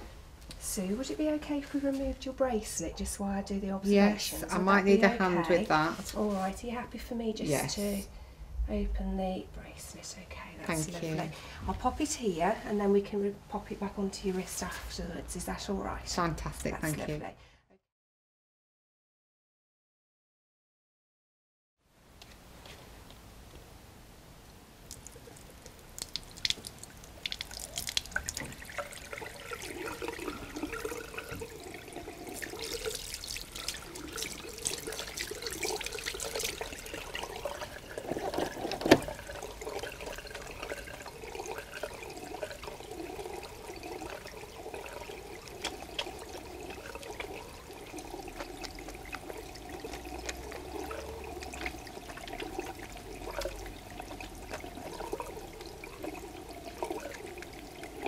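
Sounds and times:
tap water running into basin: 0.7 - 7.8, 24.8 - 58.0
small clicks and splashes: 24.8 - 31.6, 32.2 - 58.0.

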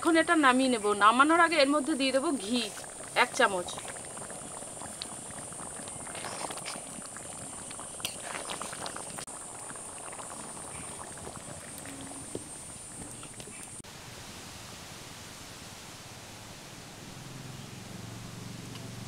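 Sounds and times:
curry bubbling and popping: 0.5 - 13.8.

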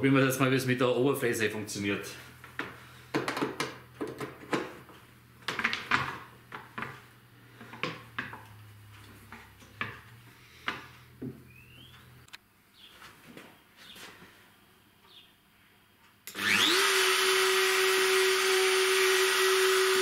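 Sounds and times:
knocks and clicks of handled tools: 2.5 - 7.0, 7.6 - 11.4.

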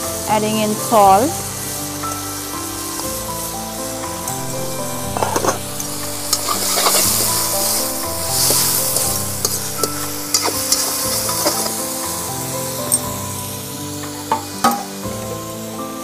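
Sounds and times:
background music: 0.0 - 16.0
food sizzling in hot oil: 0.2 - 16.0
ladle scraping wok: 4.4 - 11.8.

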